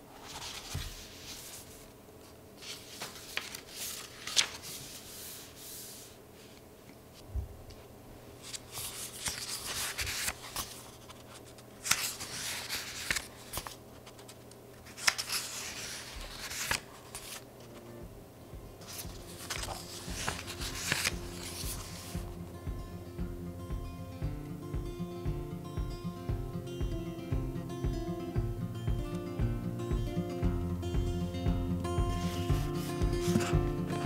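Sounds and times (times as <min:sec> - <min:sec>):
notebook pages turning: 0:00.1 - 0:01.9, 0:02.6 - 0:06.6, 0:08.4 - 0:17.8, 0:18.8 - 0:22.3, 0:32.2 - 0:34.0
pages flicking over: 0:02.6 - 0:05.1, 0:08.4 - 0:17.8, 0:18.8 - 0:22.3.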